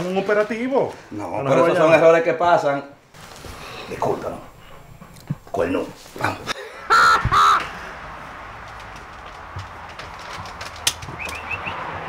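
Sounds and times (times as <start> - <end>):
small bird chirping: 11.1 - 11.8.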